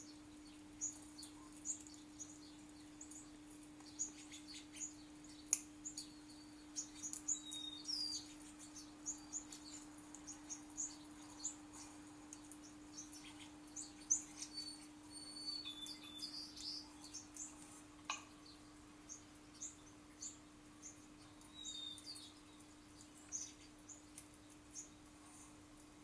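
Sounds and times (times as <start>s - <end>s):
songbirds chirping on speakers: 0.0s - 26.0s.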